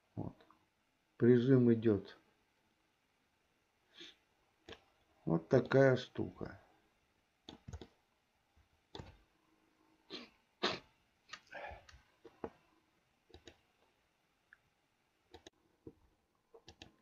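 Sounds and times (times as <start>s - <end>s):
computer mouse and keyboard clicks: 7.5s - 8.0s, 8.9s - 9.2s, 13.3s - 13.7s, 16.6s - 17.0s.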